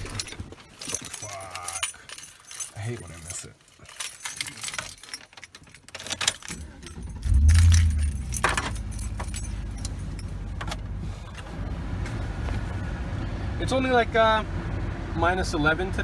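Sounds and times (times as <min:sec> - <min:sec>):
keys jangling on keychain: 0:00.0 - 0:10.6
truck engine starting and idling: 0:06.5 - 0:16.0.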